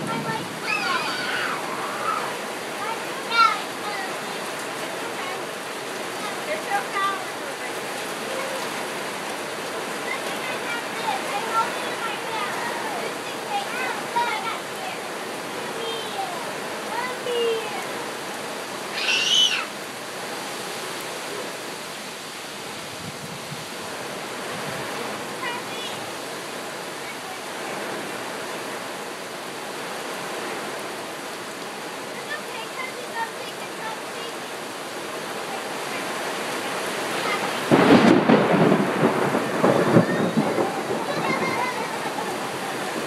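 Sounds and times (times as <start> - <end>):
gusting wind: 0.0 - 43.0
heavy rain: 0.0 - 43.0
thunder rumbling: 37.4 - 43.0.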